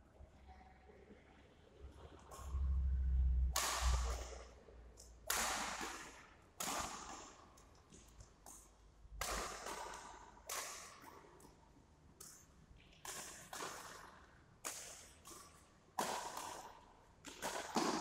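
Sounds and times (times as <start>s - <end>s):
badminton racket hitting shuttlecock: 3.5s - 4.5s, 5.2s - 7.2s, 8.4s - 11.2s, 13.0s - 18.0s.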